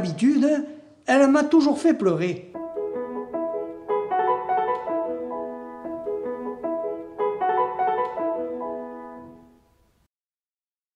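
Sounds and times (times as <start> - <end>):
piano chords and melody: 2.5 - 10.0.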